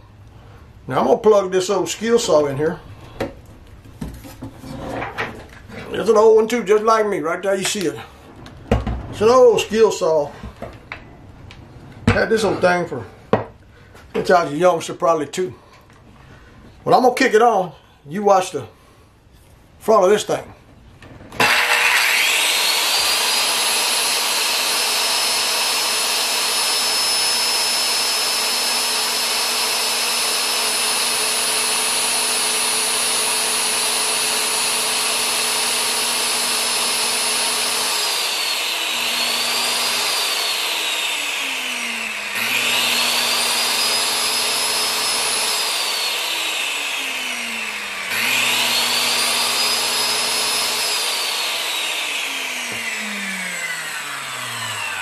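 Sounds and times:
circular saw motor whine: 21.4 - 55.0.

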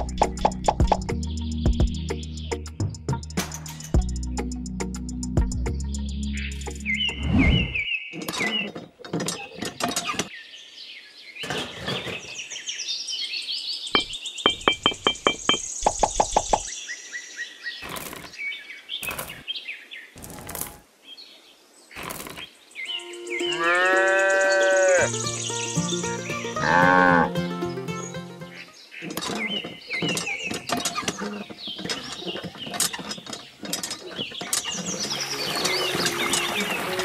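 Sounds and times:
bird chirps: 0.0 - 2.8, 5.7 - 8.7, 10.3 - 17.8, 22.4 - 27.2
background music: 0.0 - 7.2, 22.9 - 28.8, 35.0 - 37.0
cow mooing: 23.4 - 25.1, 26.6 - 27.3.

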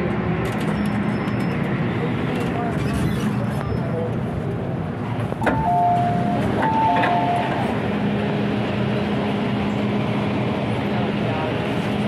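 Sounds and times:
train humming: 3.9 - 12.0.

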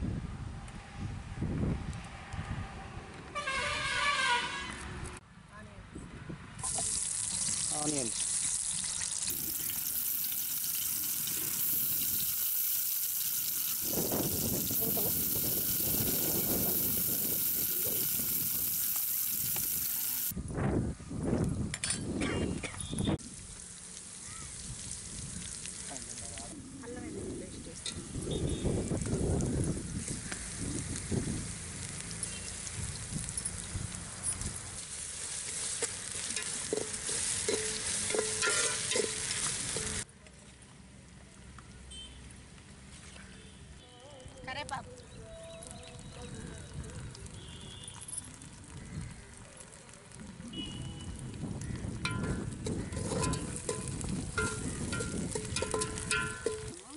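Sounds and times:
wind buffeting microphone: 0.0 - 3.1, 13.8 - 18.7, 20.3 - 23.2, 27.0 - 31.6, 50.2 - 56.7
faint outdoor background: 0.0 - 56.9
onions frying in metal pot: 6.6 - 20.4, 23.0 - 40.1, 45.7 - 56.9
metal spatula scraping pot: 35.8 - 40.0, 52.2 - 56.8
spatula striking pot: 36.4 - 39.2, 52.0 - 56.8.

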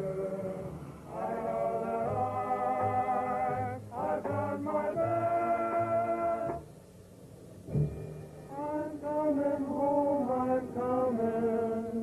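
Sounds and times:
group of voices singing: 0.0 - 6.6, 8.5 - 12.0.

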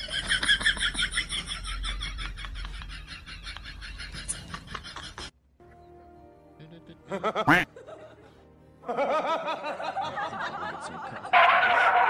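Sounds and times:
laughter sound effect: 0.0 - 5.3, 6.6 - 12.0
background music: 4.0 - 12.0.

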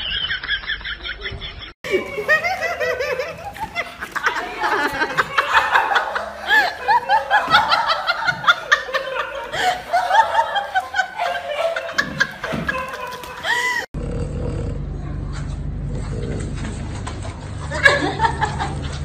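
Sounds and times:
person laughing in high bursts: 1.9 - 13.9.

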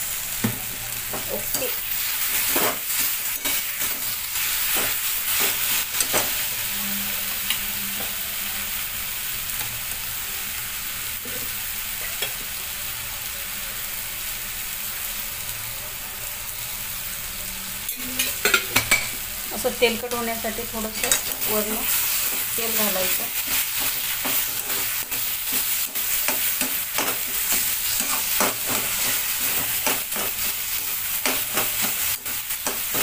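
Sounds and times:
food sizzling in hot oil: 0.0 - 33.0
metal spatula scraping a pan: 2.3 - 8.1, 21.0 - 33.0.

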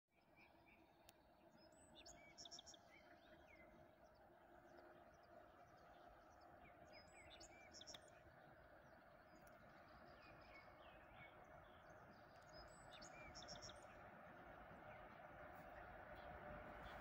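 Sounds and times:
faint steady hum: 0.2 - 17.0
songbird chirping: 0.2 - 17.0.

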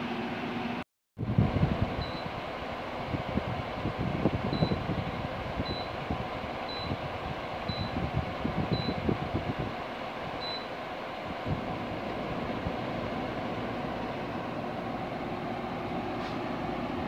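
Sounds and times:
air conditioner fan blowing: 0.0 - 17.0.

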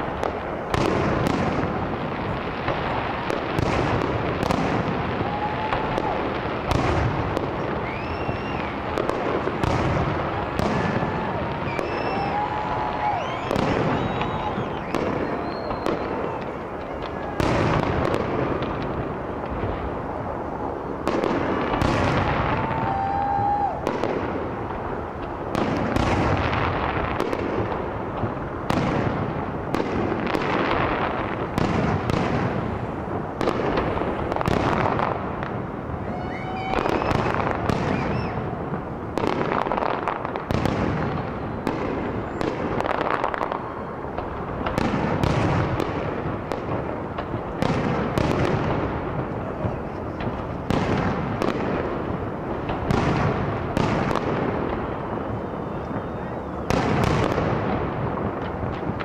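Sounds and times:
fireworks crackling: 0.0 - 59.0
fireworks rising whistles: 3.3 - 18.2, 20.6 - 24.1, 35.9 - 45.3, 55.2 - 57.4.

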